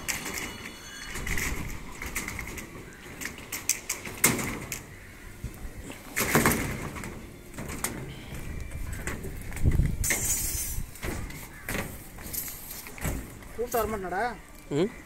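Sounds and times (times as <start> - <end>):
conduit clicking on rebar: 0.0 - 14.0
footsteps on metal bars: 5.5 - 14.0.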